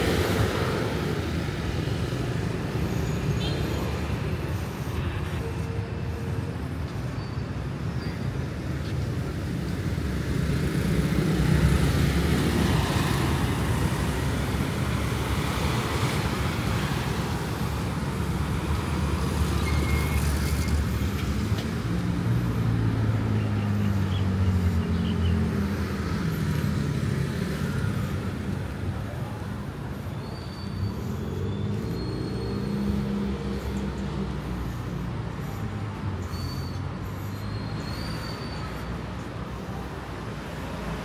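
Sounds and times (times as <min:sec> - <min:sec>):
motor vehicles passing: 0:09.0 - 0:41.0.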